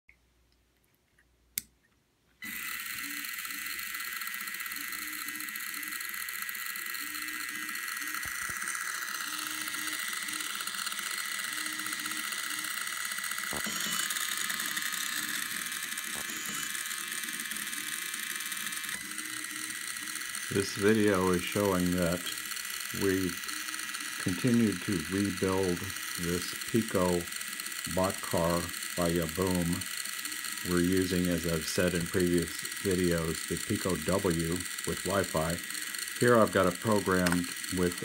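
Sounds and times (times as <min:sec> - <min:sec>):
click: 0:01.2 - 0:01.7
small motors whirring: 0:02.4 - 0:38.0.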